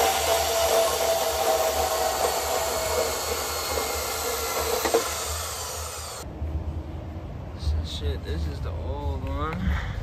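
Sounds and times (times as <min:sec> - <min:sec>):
band saw cutting steel tubing: 0:00.0 - 0:06.2.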